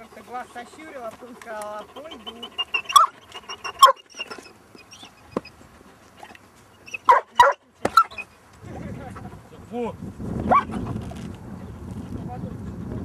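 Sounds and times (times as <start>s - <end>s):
dog barking: 2.8s - 4.1s, 6.9s - 8.3s, 10.5s - 10.8s.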